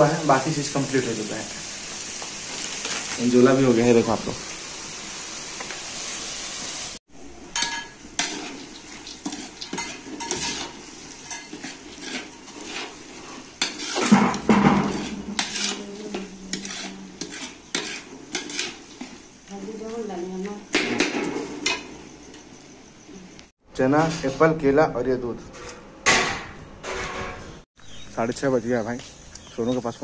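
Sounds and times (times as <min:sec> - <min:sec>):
light sizzling: 0:00.0 - 0:23.5
metal spatula scraping a pan: 0:07.6 - 0:19.8.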